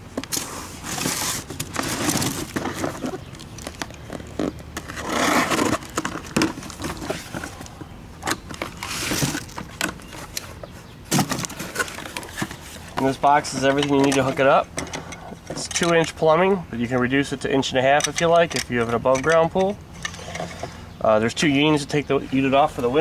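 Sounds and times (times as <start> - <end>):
packaging rustling: 0.2 - 10.4
foam scraping against cardboard: 0.3 - 3.3, 4.8 - 6.0, 8.7 - 9.5.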